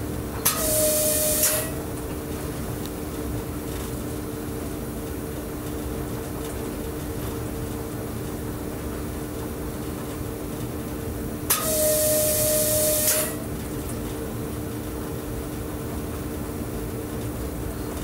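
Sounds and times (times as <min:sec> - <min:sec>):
electric train humming: 0:00.4 - 0:02.6, 0:11.5 - 0:16.8.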